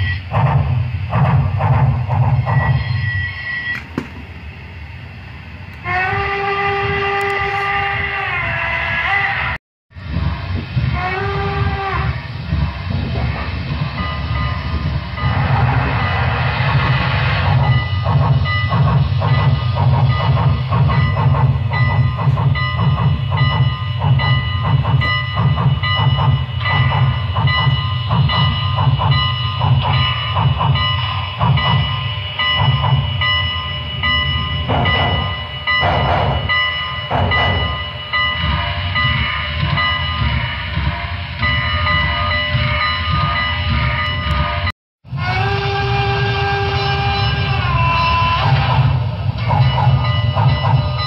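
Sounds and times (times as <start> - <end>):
model train steam chuffs: 0.0 - 51.0.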